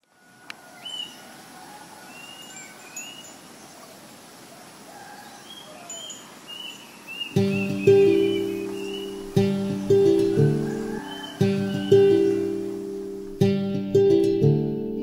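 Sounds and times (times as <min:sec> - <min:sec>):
birds chirping: 0:00.0 - 0:13.4
steady background hiss: 0:00.0 - 0:14.3
acoustic guitar chord strummed: 0:07.4 - 0:15.0.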